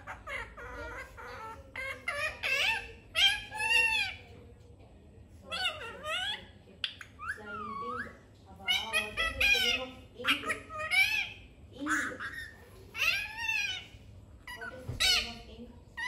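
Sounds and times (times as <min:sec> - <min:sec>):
parakeet vocalizing: 0:00.0 - 0:04.4, 0:05.4 - 0:16.0.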